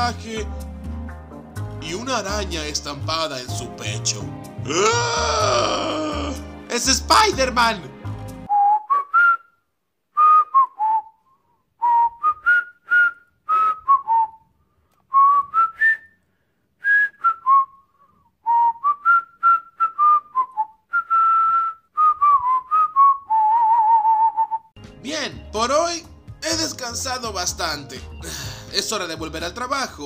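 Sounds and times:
person whistling a tune: 8.5s - 9.6s, 10.2s - 14.5s, 15.1s - 16.2s, 16.8s - 24.7s.

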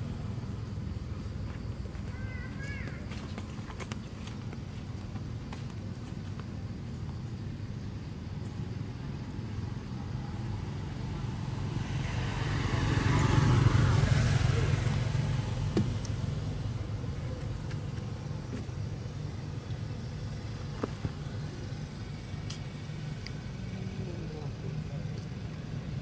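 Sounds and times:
road vehicle passing by: 7.4s - 26.0s.

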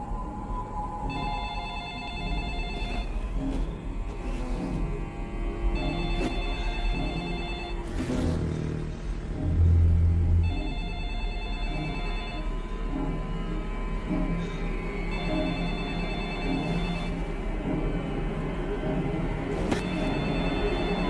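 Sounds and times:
thin high whine: 0.0s - 12.7s, 15.2s - 17.4s
telephone ringing: 1.1s - 3.4s, 5.8s - 8.1s, 10.5s - 12.5s, 15.2s - 17.2s, 19.8s - 21.0s.

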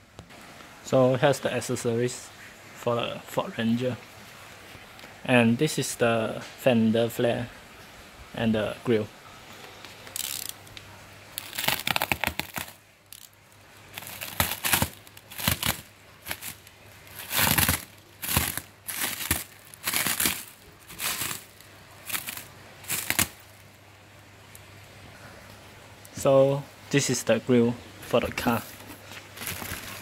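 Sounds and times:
plastic wrap crinkling and tearing: 9.7s - 23.7s, 28.5s - 30.0s.

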